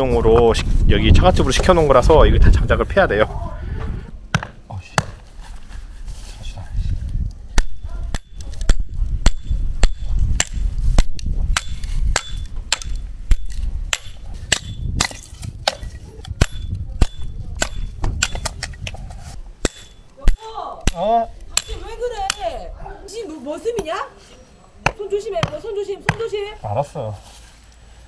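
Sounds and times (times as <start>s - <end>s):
axe chopping wood: 4.3s - 5.2s, 7.5s - 18.7s, 19.6s - 22.5s, 24.8s - 26.4s.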